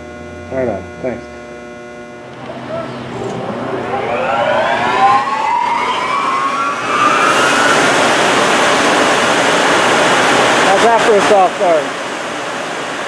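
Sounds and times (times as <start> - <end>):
electric motor whine: 0.0 - 10.7
fan air rush: 0.0 - 13.0.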